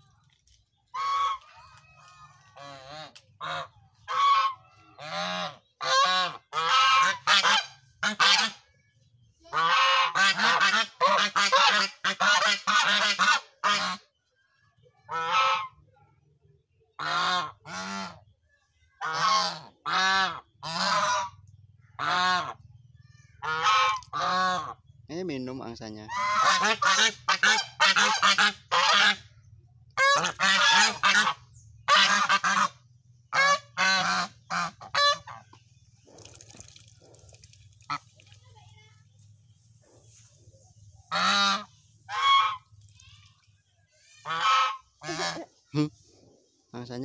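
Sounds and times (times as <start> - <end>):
geese honking: 0.9 - 8.6, 9.5 - 14.1, 15.1 - 15.8, 17.0 - 18.2, 19.0 - 21.4, 22.0 - 22.6, 23.4 - 24.8, 26.1 - 29.3, 30.0 - 35.6, 41.1 - 42.7, 44.2 - 45.6.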